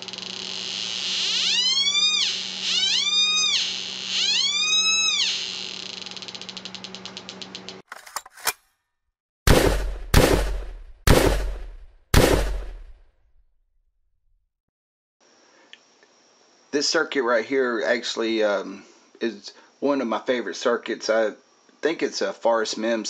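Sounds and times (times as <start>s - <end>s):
loud booming hits: 9.5s - 12.9s.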